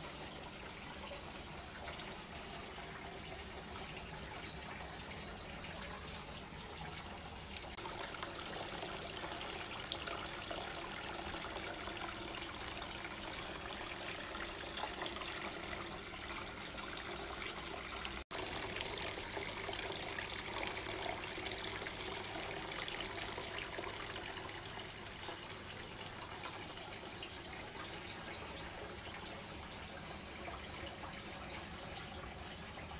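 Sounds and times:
fountain water trickling and splashing: 0:00.0 - 0:32.9.

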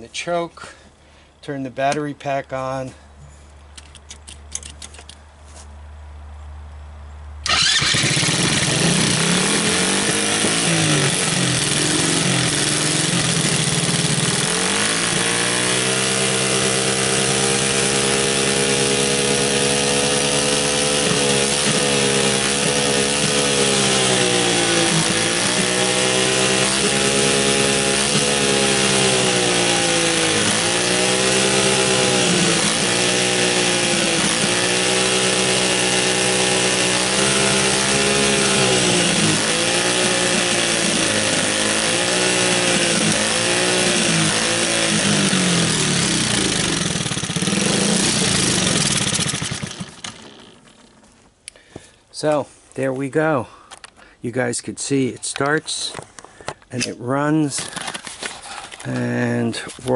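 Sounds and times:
small engine running unevenly: 0:07.4 - 0:51.2, 0:57.6 - 0:58.8.

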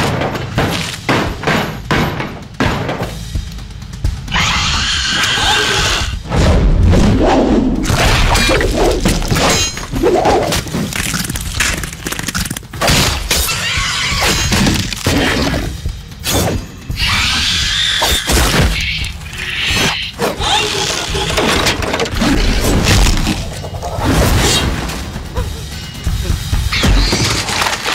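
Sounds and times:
dramatic music: 0:00.0 - 0:27.9
crashes and smashing: 0:07.8 - 0:13.4, 0:26.7 - 0:27.9.

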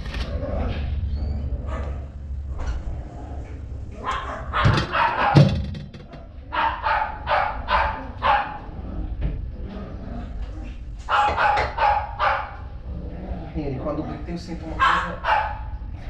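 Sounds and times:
dog barking: 0:01.6 - 0:02.1, 0:04.0 - 0:05.5, 0:06.2 - 0:08.7, 0:11.1 - 0:12.7, 0:14.8 - 0:15.7.

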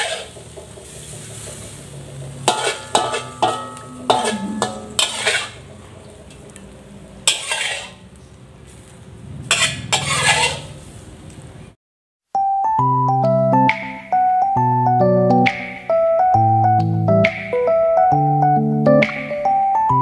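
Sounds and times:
metal ladle scraping a wok: 0:00.0 - 0:06.4, 0:07.2 - 0:11.0.

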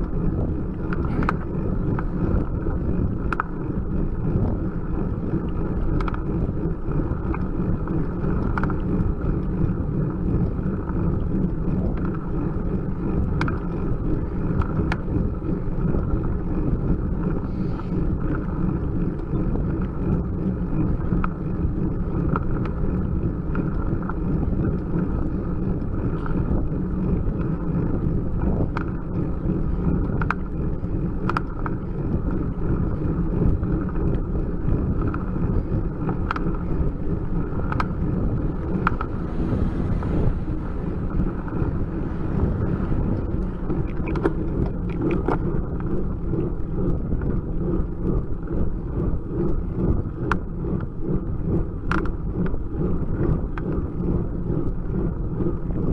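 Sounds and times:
bicycle clicks and rattles: 0:00.0 - 0:39.4, 0:40.1 - 0:46.1, 0:51.8 - 0:53.9
wind rumble: 0:00.0 - 0:55.9
road noise: 0:38.8 - 0:45.1.

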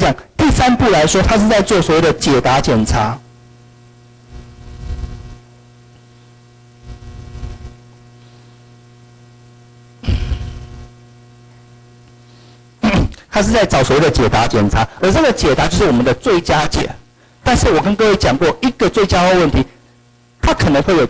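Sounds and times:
electrical hum: 0:00.0 - 0:21.0.

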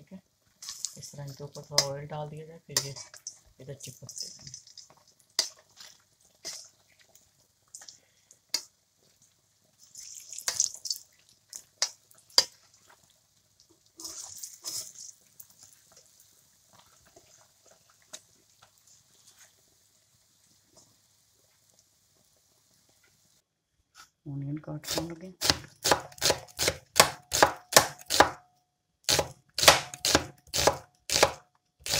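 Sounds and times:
oil crackling and spitting: 0:04.2 - 0:23.2.

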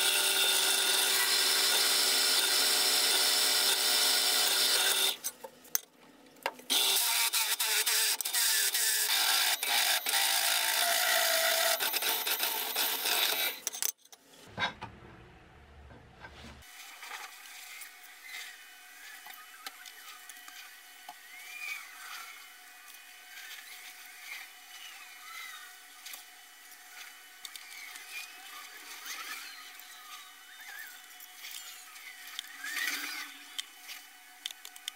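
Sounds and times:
drill press cutting steel: 0:00.0 - 0:05.2
low hum: 0:14.5 - 0:16.7
paintbrush swishes: 0:15.7 - 0:16.7.

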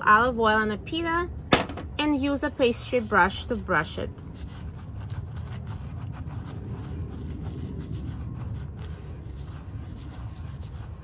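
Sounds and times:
steady low rumble: 0:00.0 - 0:11.0
pastry brush scraping: 0:02.4 - 0:11.0.

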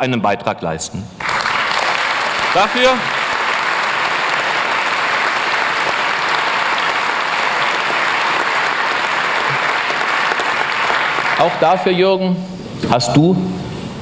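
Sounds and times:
audience applause: 0:01.2 - 0:12.0.

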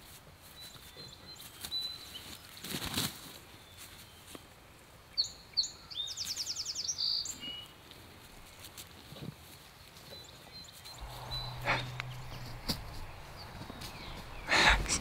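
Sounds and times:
songbird singing with trill: 0:05.1 - 0:07.7, 0:10.1 - 0:15.0
low steady hum: 0:11.0 - 0:15.0.

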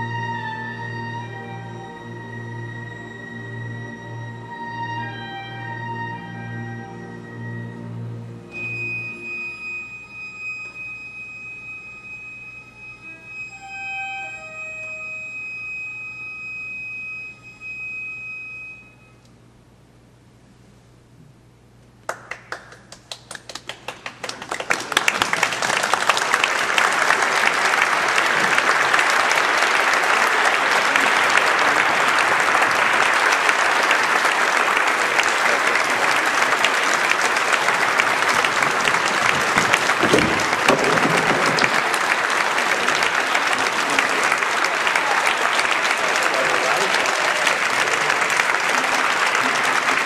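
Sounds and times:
audience applauding: 0:22.1 - 0:50.0.

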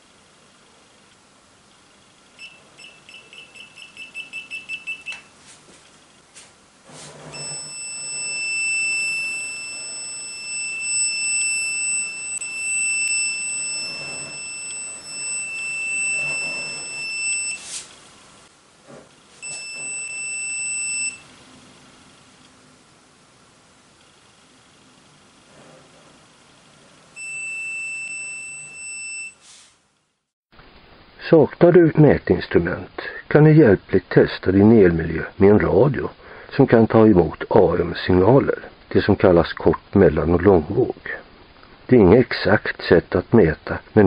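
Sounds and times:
steady electronic tone: 0:02.4 - 0:05.2, 0:07.2 - 0:18.0
voltage tester beeping: 0:02.4 - 0:05.3, 0:07.3 - 0:17.7, 0:19.4 - 0:21.3, 0:27.2 - 0:29.4.

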